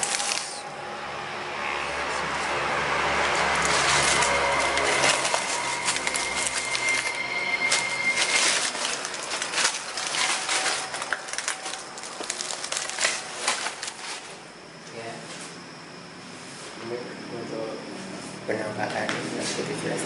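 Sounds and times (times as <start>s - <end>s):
thin high tone: 0.0s - 20.0s
footsteps crunching: 2.1s - 14.4s.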